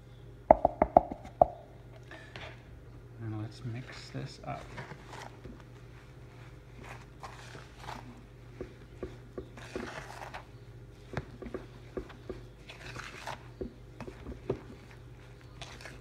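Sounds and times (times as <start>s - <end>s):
spatula scraping gritty paste: 6.9s - 8.3s, 9.1s - 16.0s.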